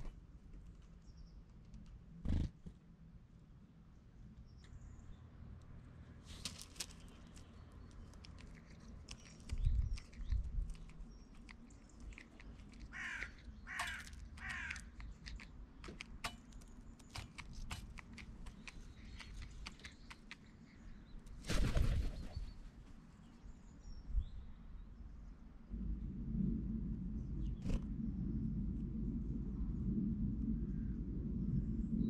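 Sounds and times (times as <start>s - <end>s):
crow cawing: 12.9s - 14.9s
crow taking off: 12.9s - 14.9s
beak pecking on metal tray: 12.9s - 20.3s.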